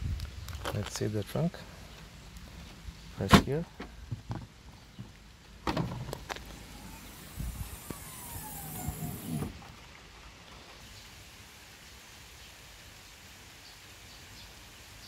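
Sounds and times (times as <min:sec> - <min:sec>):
soft hiss: 0:00.0 - 0:15.0.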